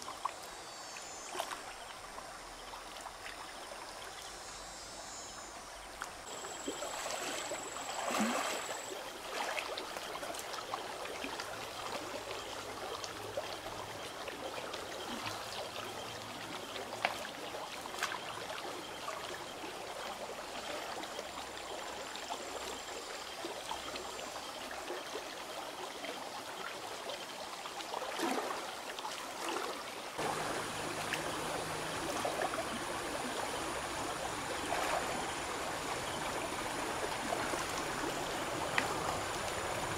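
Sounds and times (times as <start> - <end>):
river water flowing: 0.0 - 39.9
person wading through water: 6.1 - 12.2, 29.4 - 39.9.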